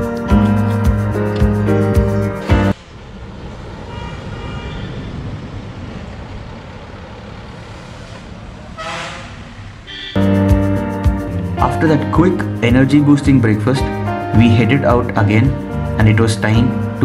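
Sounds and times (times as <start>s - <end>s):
car passing with tyre noise: 2.7s - 10.2s.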